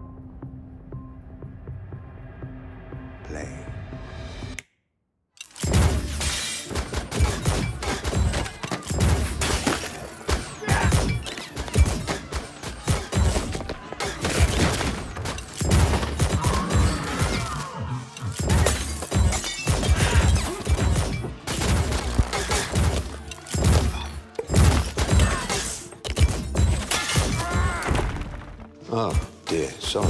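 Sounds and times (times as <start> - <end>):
crashes and shattering: 5.5 - 17.7
action music with strong beat: 5.6 - 30.0
fight thuds and impacts: 18.4 - 25.5.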